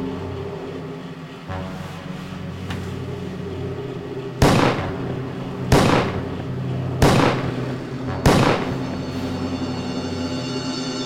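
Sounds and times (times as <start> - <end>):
steady low hum: 0.0 - 11.0
pistol shots: 4.4 - 5.0, 5.7 - 6.3, 7.0 - 7.6, 8.2 - 8.8.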